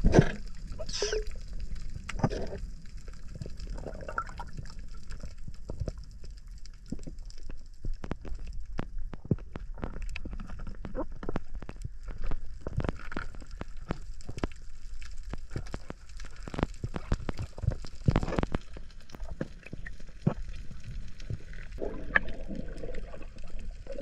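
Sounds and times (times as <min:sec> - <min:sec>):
underwater clicks and pops: 0:03.3 - 0:24.0.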